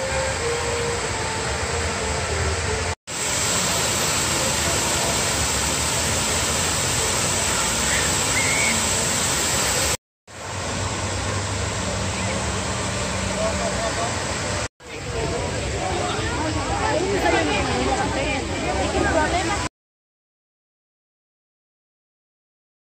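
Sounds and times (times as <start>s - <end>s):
fountain water rushing and splashing: 0.0s - 19.7s.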